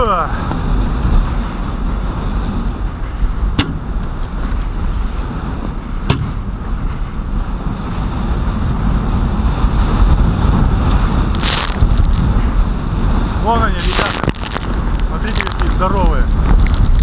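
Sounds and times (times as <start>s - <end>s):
waves splashing around boat: 0.0s - 17.0s
wind buffeting microphone: 0.0s - 17.0s
hull knocking on waves: 3.5s - 3.9s, 6.0s - 6.4s.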